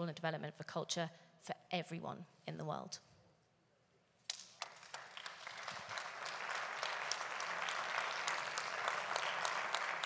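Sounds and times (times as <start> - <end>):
audience applause: 4.6 - 10.0.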